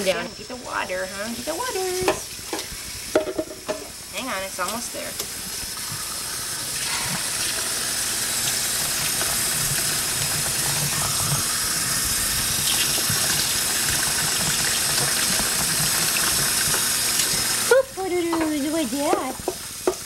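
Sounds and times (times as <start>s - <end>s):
faucet running into sink: 0.0s - 20.0s
cup filling with water: 5.4s - 17.7s.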